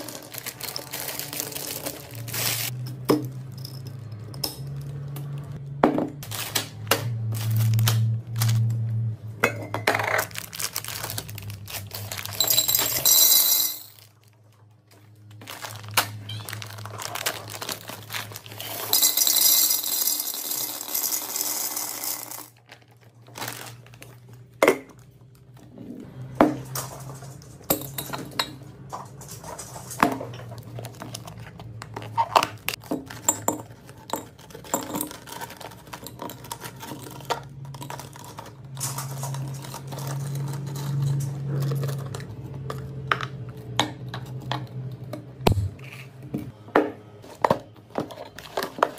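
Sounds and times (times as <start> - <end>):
plastic packaging crinkling: 0.0 - 2.8, 6.2 - 8.8, 10.2 - 12.7, 13.9 - 18.9, 22.6 - 24.5
candies clattering into glass jars: 0.0 - 5.2, 9.4 - 25.1, 26.5 - 43.3.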